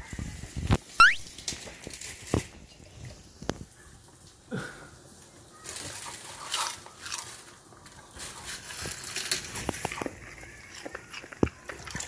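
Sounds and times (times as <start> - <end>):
dog chewing food: 6.0 - 12.0.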